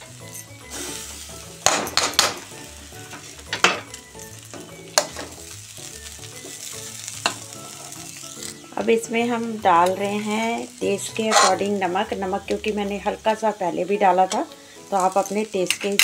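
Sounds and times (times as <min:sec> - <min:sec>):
vegetables sizzling in a pan: 0:00.0 - 0:16.0
utensils knocking and scraping pan: 0:01.6 - 0:05.4, 0:11.2 - 0:11.8.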